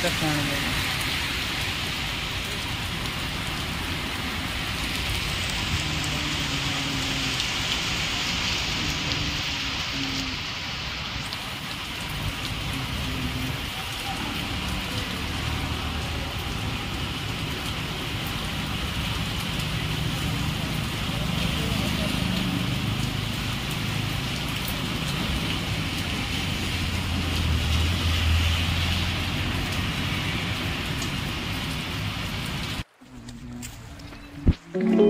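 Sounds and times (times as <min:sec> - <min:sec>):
rain on wet pavement: 0:00.0 - 0:35.0
raindrop ticks: 0:30.8 - 0:35.0.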